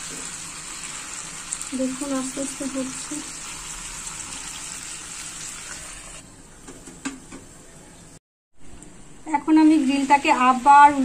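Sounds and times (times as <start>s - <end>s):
chicken sizzling in oil: 0.0s - 6.2s, 9.4s - 11.0s.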